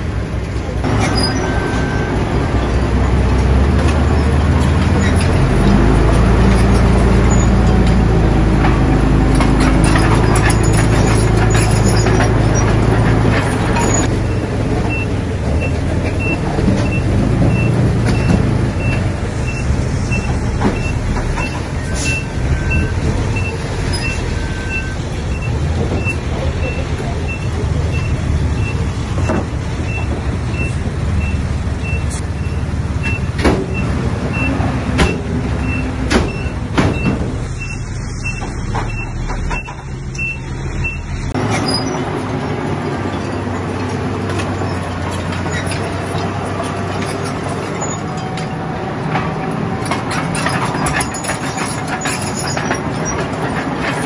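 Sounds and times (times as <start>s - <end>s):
diesel engines running under load: 0.0s - 54.0s
reversing beep: 1.2s - 2.2s, 14.3s - 41.1s.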